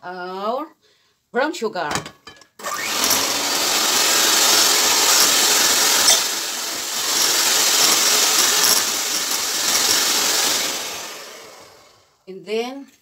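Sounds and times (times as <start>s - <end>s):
electric hand mixer whirring: 2.6s - 12.2s.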